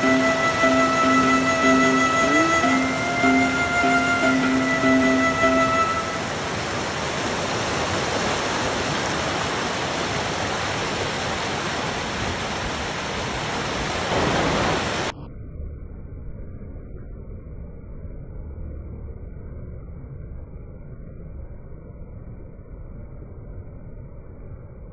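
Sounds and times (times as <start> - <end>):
river rapids rushing over boulders: 0.0 - 15.1.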